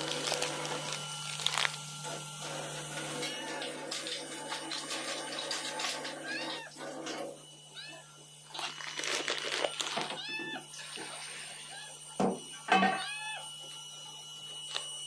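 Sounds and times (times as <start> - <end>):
cat meowing: 6.2 - 6.8, 7.7 - 8.1, 10.0 - 10.7, 12.8 - 13.5.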